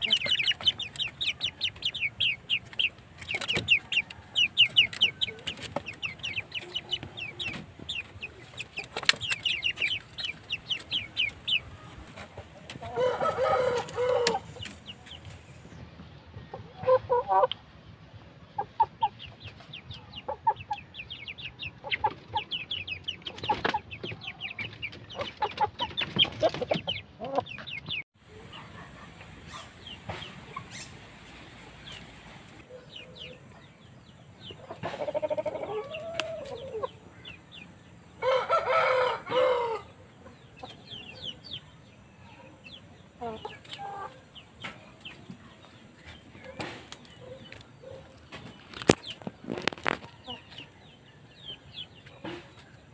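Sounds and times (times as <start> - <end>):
chickens clucking and calling: 0.0 - 52.9
rooster crowing: 12.9 - 14.4, 38.2 - 39.9.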